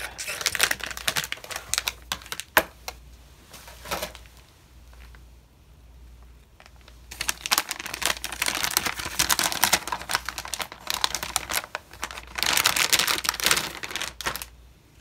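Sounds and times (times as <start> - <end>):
plastic bag crinkling: 0.0 - 2.8, 6.6 - 14.6.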